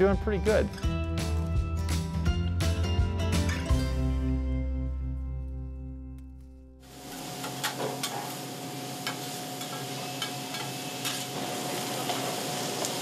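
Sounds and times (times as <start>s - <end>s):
food sizzling on a griddle: 6.8s - 13.0s.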